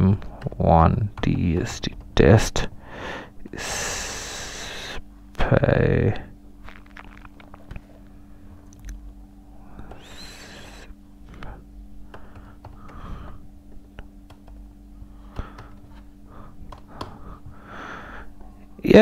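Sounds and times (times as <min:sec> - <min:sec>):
steady low hum: 0:00.0 - 0:19.0
loud breath: 0:02.8 - 0:05.0, 0:09.6 - 0:13.4, 0:15.1 - 0:18.4
laptop keyboard clicking: 0:14.2 - 0:14.6.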